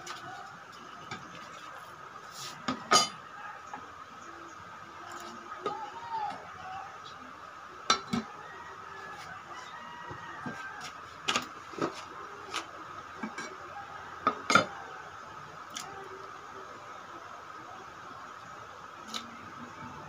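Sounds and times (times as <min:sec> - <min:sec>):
faint steady hum: 0:00.0 - 0:20.0
metal pot lid clanking: 0:02.9 - 0:03.2.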